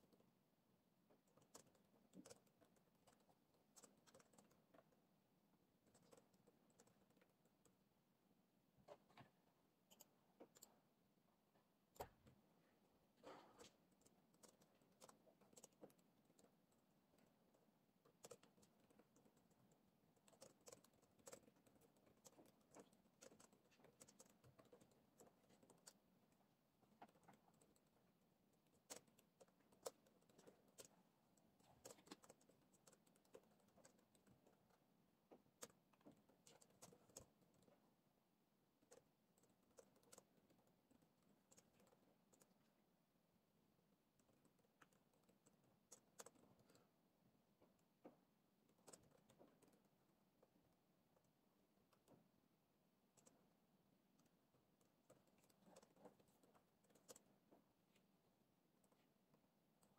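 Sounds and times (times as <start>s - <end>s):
laptop keyboard typing: 1.2s - 5.1s, 13.2s - 38.0s, 38.8s - 42.7s.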